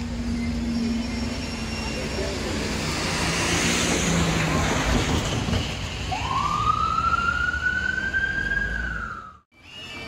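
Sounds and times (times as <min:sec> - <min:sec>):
passing traffic rumble: 0:00.0 - 0:09.4
emergency vehicle siren wailing: 0:06.1 - 0:10.0.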